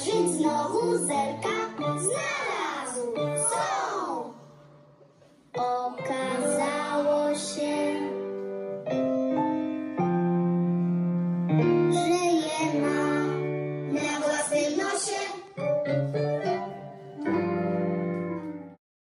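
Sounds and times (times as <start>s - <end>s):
piano accompaniment: 0.0s - 18.8s
person singing: 5.6s - 8.3s.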